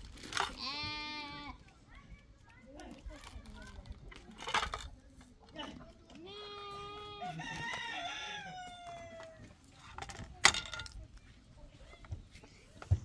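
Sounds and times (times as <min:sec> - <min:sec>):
rooster crowing: 0:07.2 - 0:09.4.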